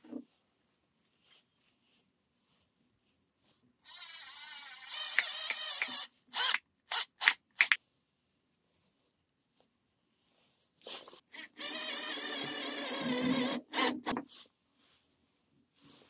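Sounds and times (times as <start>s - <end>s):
cordless drill whining: 3.8s - 7.3s, 11.3s - 14.2s.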